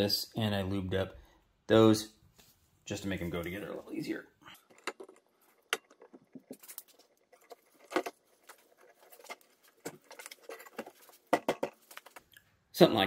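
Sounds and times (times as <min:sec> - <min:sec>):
metal parts clicking and knocking: 0:04.5 - 0:12.3.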